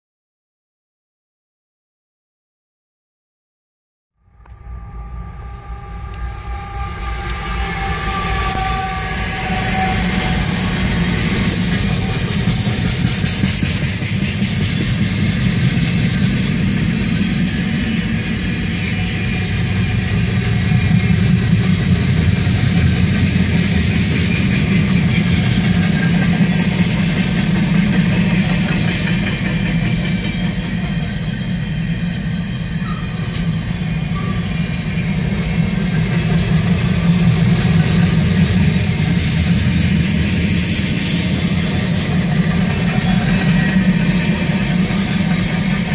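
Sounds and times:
freight train wheels on rails: 0:04.2 - 0:45.9.

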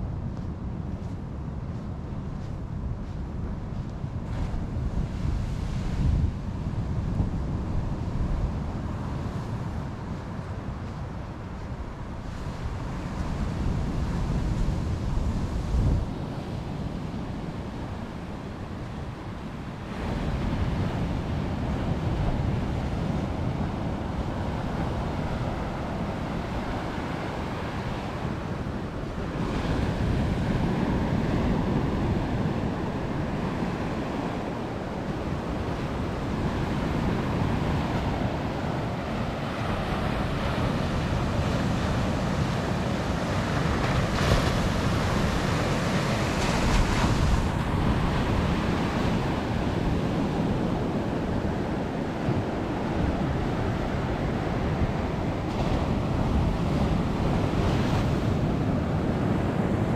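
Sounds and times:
ocean surf breaking: 0:15.5 - 0:59.9.

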